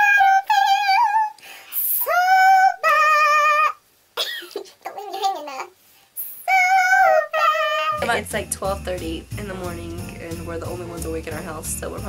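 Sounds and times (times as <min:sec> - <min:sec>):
woman laughing: 0:04.2 - 0:04.8, 0:07.9 - 0:08.4.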